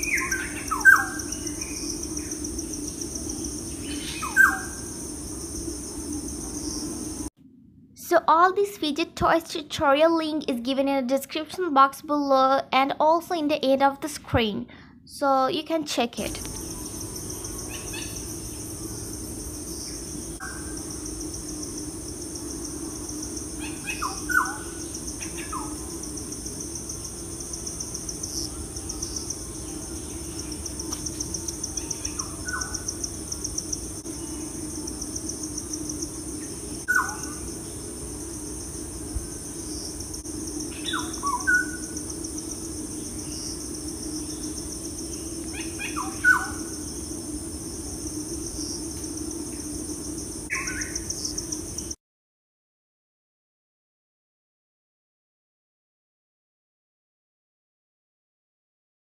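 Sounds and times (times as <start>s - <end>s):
bird chirps: 0.0s - 4.9s, 40.7s - 42.0s
crickets trilling: 0.0s - 7.3s, 16.2s - 52.0s.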